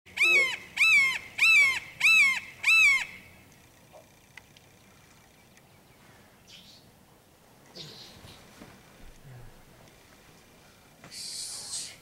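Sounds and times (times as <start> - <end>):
hawk calling: 0.1 - 4.0.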